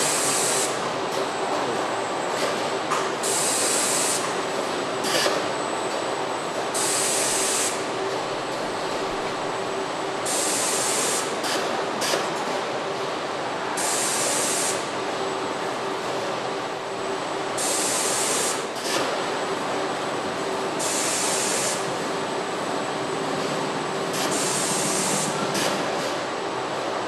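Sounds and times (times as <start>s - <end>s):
steady machine drone: 14.4s - 27.0s
compressed air hiss: 24.2s - 25.4s.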